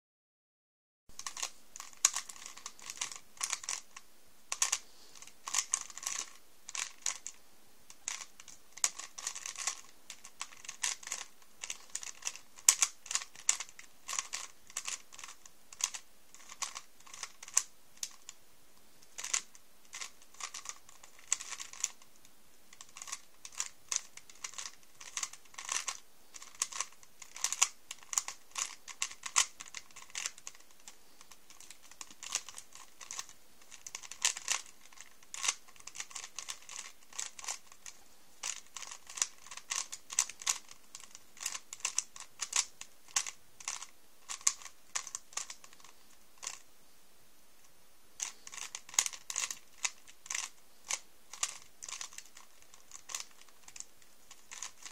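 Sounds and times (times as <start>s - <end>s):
plastic puzzle cube clicking: 1.2s - 18.4s, 19.0s - 46.7s, 47.6s - 54.9s.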